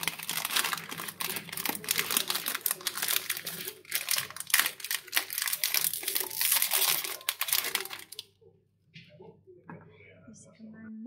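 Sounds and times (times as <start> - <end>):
dense crinkling and crackling: 0.0 - 8.3.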